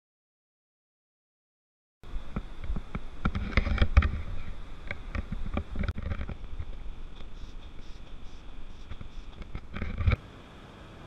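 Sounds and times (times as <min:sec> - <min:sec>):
wind rumbling on microphone: 0:02.0 - 0:10.2
camera handling knocks and rustles: 0:04.9 - 0:07.3.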